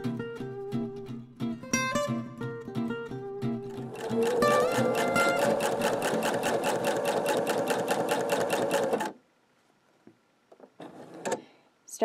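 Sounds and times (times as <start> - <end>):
sewing machine running: 3.8 - 9.2.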